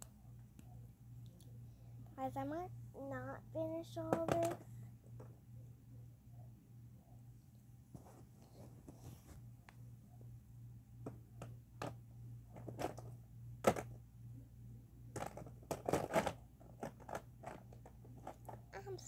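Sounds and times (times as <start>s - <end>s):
low steady hum: 0.0s - 19.0s
paper and markers rustling: 7.9s - 9.5s.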